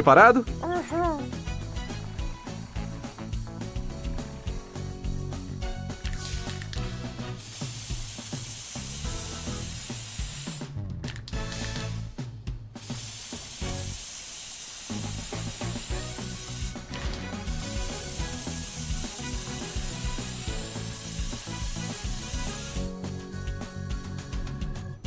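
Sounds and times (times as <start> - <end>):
light background music: 0.0 - 25.0
spray can hissing: 1.9 - 10.7, 12.8 - 22.9.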